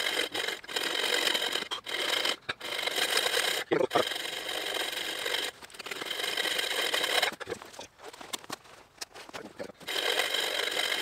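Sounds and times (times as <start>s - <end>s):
bow saw cutting log: 0.0s - 7.4s, 9.8s - 11.0s.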